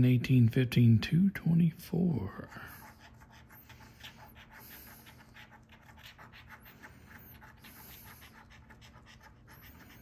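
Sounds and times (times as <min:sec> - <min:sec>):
coin scraping scratch card: 0:02.8 - 0:10.0.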